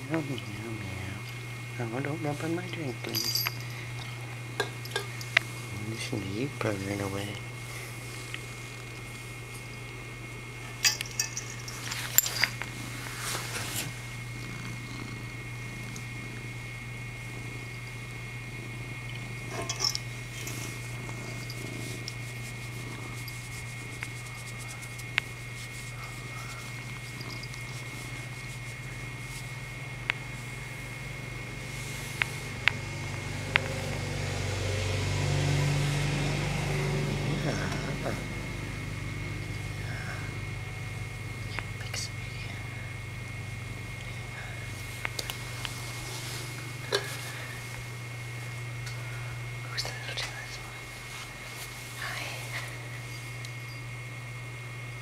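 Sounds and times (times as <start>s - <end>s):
cat purring: 0.0s - 53.8s.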